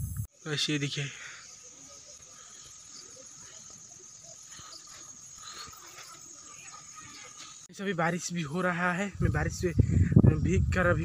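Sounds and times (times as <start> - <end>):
insects trilling: 0.0 - 8.5.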